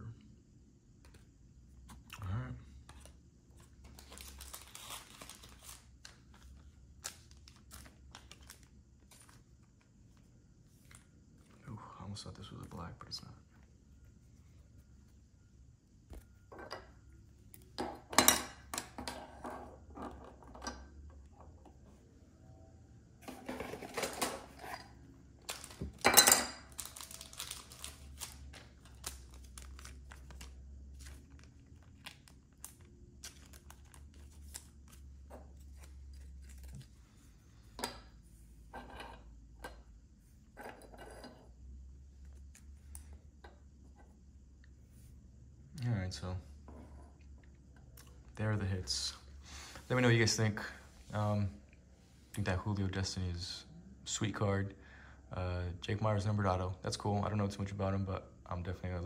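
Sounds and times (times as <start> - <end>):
cards rustling: 2.9 - 11.6, 26.7 - 37.4.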